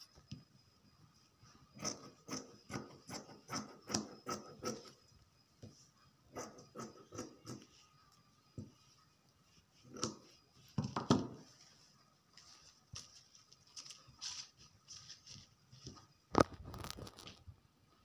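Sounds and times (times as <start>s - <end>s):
cloth rustling: 11.5s - 15.9s.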